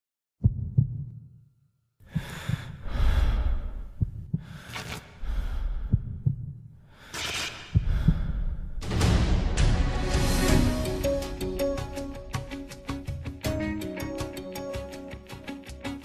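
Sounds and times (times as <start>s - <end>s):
heartbeat double thumps: 0.4s - 1.4s, 2.0s - 4.6s, 5.4s - 6.8s, 7.7s - 9.1s
loud breathing: 2.0s - 8.8s
soundtrack song: 8.8s - 16.0s.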